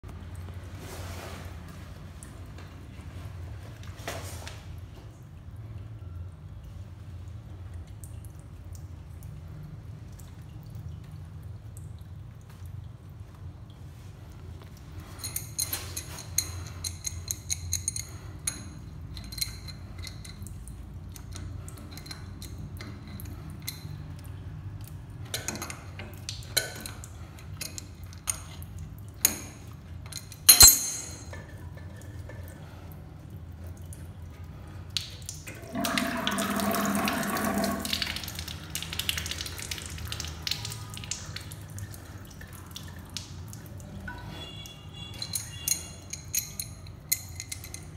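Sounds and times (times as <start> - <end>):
water dripping: 0.0 - 0.9, 1.7 - 47.9
wrench clinking on metal fitting: 29.3 - 31.6, 44.4 - 47.9
sharp metal clack: 30.5 - 31.5
water rushing: 35.5 - 44.1.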